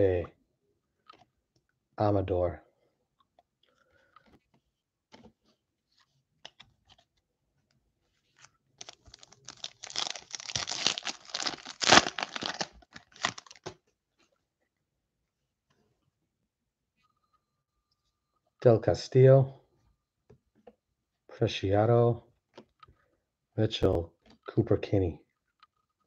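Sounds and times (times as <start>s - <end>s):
plastic wrapper tearing and crinkling: 8.8s - 13.8s.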